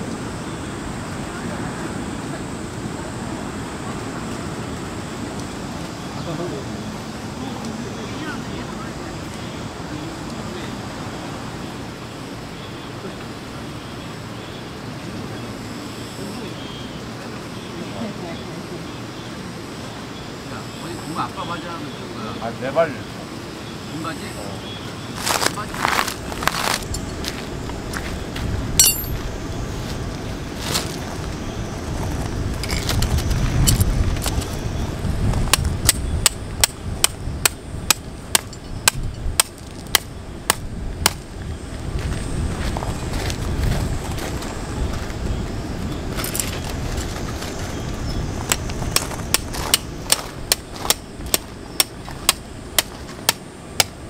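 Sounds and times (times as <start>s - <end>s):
footsteps crunching on gravel: 25.1s - 34.2s, 41.8s - 45.3s
hammer striking metal tent peg: 28.8s - 29.1s, 35.5s - 41.2s
metal tent pegs clinking: 28.8s - 29.2s, 38.3s - 39.6s, 46.2s - 46.8s.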